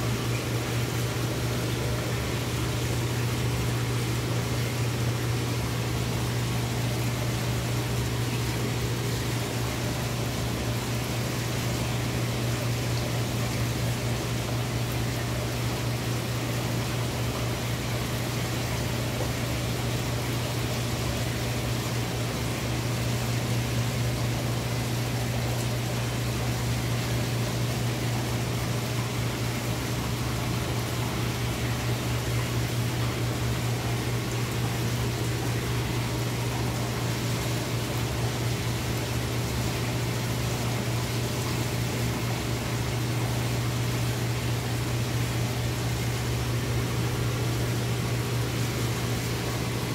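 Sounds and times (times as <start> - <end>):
aquarium filter hiss: 0.0 - 49.9
aquarium filter hum: 0.0 - 49.9.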